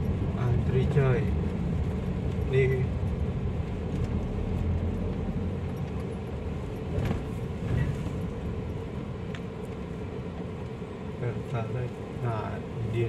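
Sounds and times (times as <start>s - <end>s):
car engine low rumble: 0.0s - 13.0s.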